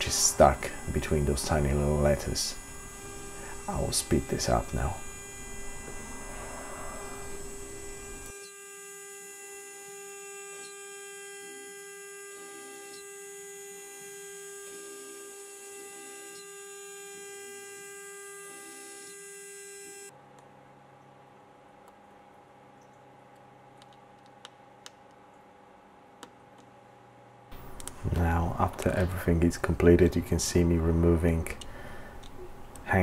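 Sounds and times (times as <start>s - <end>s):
router spindle whining hum: 0.0s - 20.2s, 26.9s - 33.0s
faint background hum: 0.0s - 33.0s.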